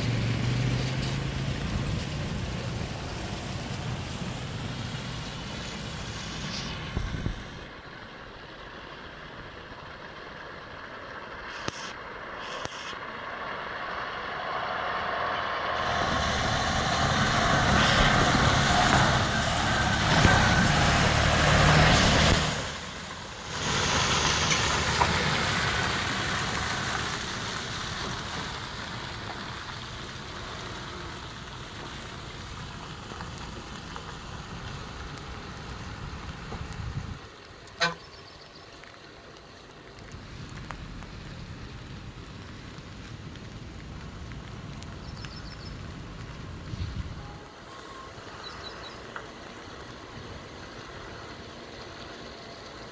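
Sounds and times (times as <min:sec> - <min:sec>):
lorry diesel engine passing: 0:00.0 - 0:36.5
tyres on wet muddy road: 0:00.0 - 0:52.9.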